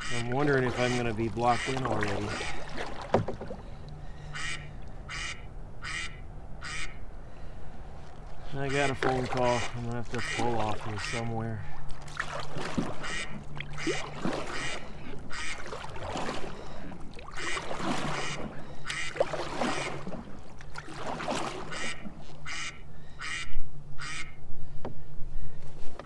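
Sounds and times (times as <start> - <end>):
ducks quacking: 0.0 - 2.9, 4.1 - 7.0, 8.4 - 11.7, 12.9 - 15.9, 16.5 - 20.0, 21.6 - 24.4
low steady hum: 0.0 - 26.0.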